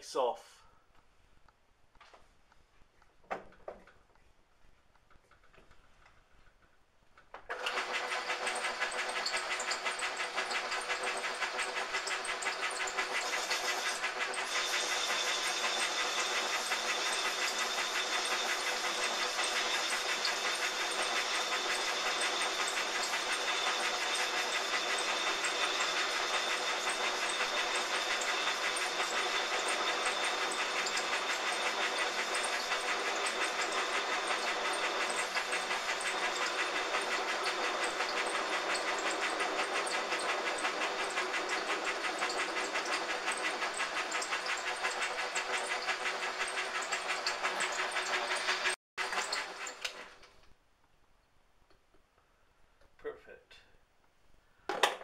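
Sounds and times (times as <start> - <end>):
metal lathe running: 7.5 - 50.1.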